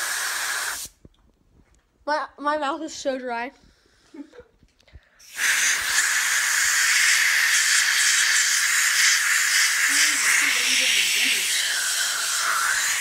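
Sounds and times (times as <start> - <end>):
air blow gun hissing: 0.0 - 1.0, 5.2 - 13.0.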